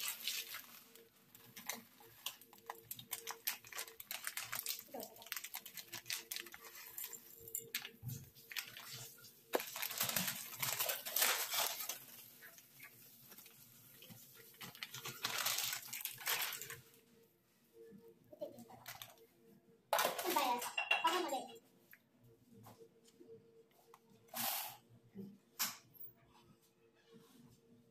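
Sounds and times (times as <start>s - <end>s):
snack mix poured into metal pot: 0.0s - 8.0s, 8.6s - 16.8s.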